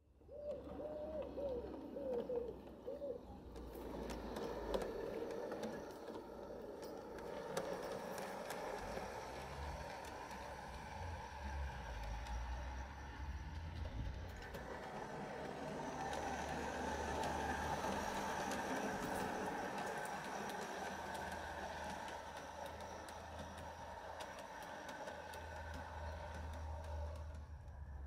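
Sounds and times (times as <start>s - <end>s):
model train motor and gear hum: 0.0s - 28.0s
wheels clicking over rail joints: 0.1s - 28.0s
pigeon cooing: 0.2s - 4.1s.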